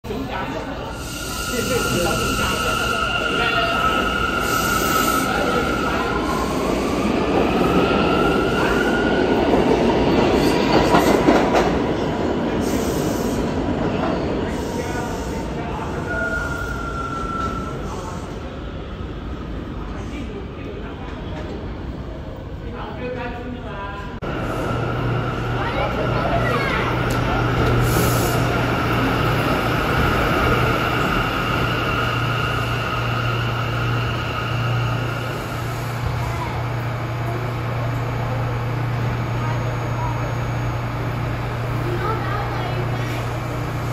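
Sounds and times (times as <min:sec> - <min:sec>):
train wheels rumbling on rails: 0:01.0 - 0:16.1, 0:24.1 - 0:43.9
subway train motor whine: 0:24.2 - 0:43.9.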